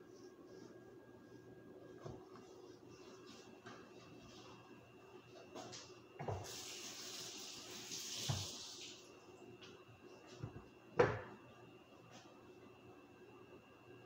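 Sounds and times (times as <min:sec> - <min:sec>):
hiss: 0:06.4 - 0:09.0
knocks on kitchen counter: 0:11.0 - 0:11.4.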